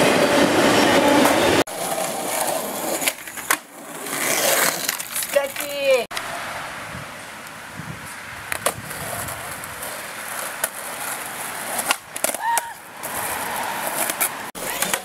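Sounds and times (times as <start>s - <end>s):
skateboard wheels rolling on asphalt: 0.0s - 15.0s
skateboard tail clacks: 1.2s - 6.2s, 8.5s - 15.0s.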